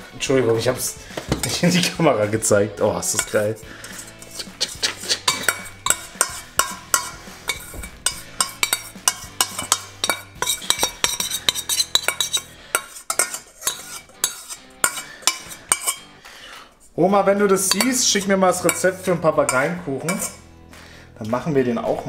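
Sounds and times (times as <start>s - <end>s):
spoon scraping a steel bowl: 3.0s - 16.2s, 17.6s - 20.5s.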